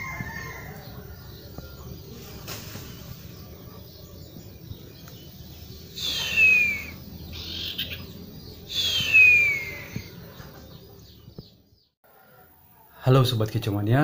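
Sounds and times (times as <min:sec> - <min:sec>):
bird chattering calls: 0:05.0 - 0:11.3
songbird falling whistles: 0:06.0 - 0:07.0, 0:08.7 - 0:10.2.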